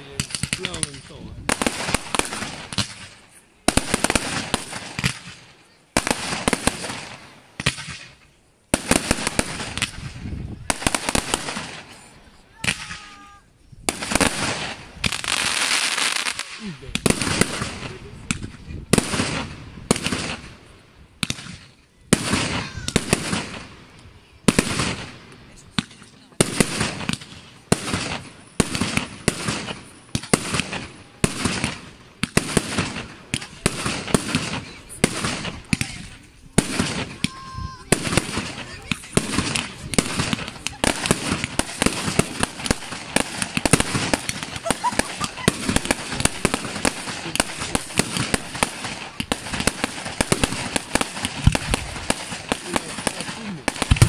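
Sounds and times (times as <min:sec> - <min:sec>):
firework crackling: 0:00.0 - 0:54.0
firework shells bursting: 0:21.2 - 0:54.0.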